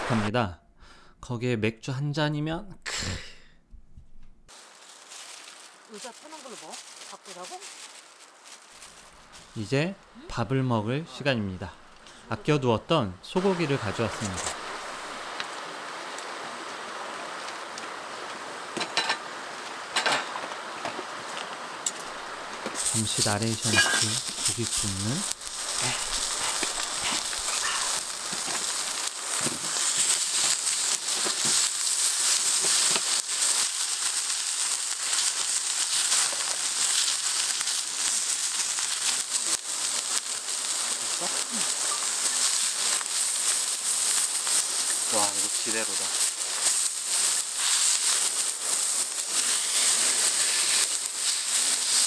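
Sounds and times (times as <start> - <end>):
steaks sizzling on a griddle: 4.5 - 9.6, 13.3 - 52.0
frying pan clattering on stove: 19.9 - 20.4.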